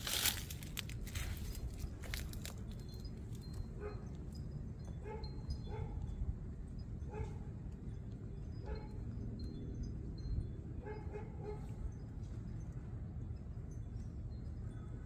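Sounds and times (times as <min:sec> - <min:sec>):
scratchy rustling: 0:00.0 - 0:02.6
steady low rumble: 0:00.0 - 0:10.8
dog barking: 0:05.0 - 0:06.0, 0:07.1 - 0:07.4, 0:10.8 - 0:11.7.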